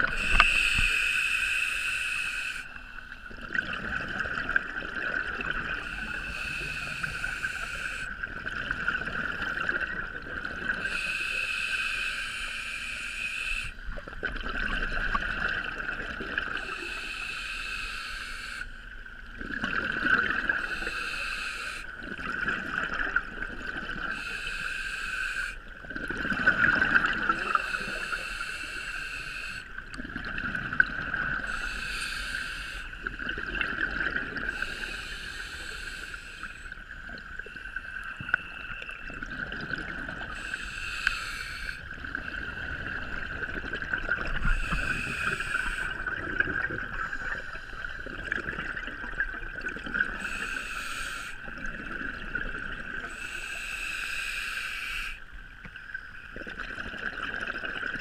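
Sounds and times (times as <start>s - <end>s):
exhaled bubbles rumbling: 0.0s - 0.9s, 3.2s - 7.5s, 8.1s - 11.0s, 13.9s - 16.8s, 19.2s - 20.8s, 22.0s - 24.2s, 25.7s - 28.1s, 29.8s - 31.6s, 33.0s - 34.8s, 36.9s - 40.5s, 41.8s - 50.4s, 51.4s - 53.2s, 56.3s - 58.0s
diver breathing through regulator: 0.0s - 3.0s, 5.7s - 8.2s, 10.8s - 13.8s, 16.6s - 18.8s, 20.5s - 22.0s, 24.0s - 25.7s, 26.7s - 29.9s, 31.3s - 33.2s, 34.4s - 36.8s, 39.6s - 42.9s, 44.3s - 48.1s, 50.0s - 51.5s, 53.1s - 55.3s.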